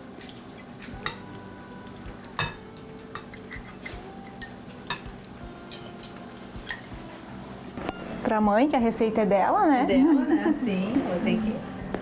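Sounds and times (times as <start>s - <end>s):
spoon clinking against glass: 2.4s - 5.1s, 5.7s - 6.9s.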